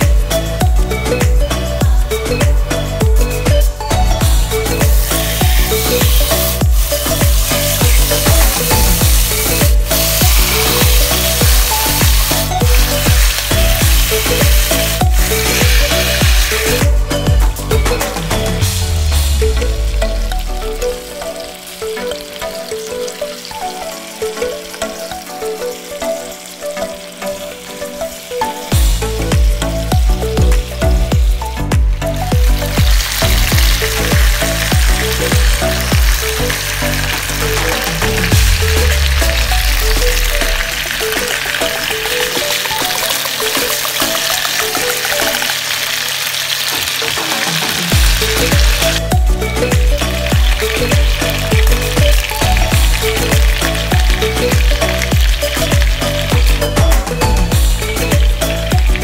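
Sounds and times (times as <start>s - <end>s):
deep bass beat: 0.0s - 21.2s, 28.7s - 40.9s, 47.9s - 59.0s
background music: 0.0s - 59.0s
food sizzling in a pan: 4.2s - 59.0s.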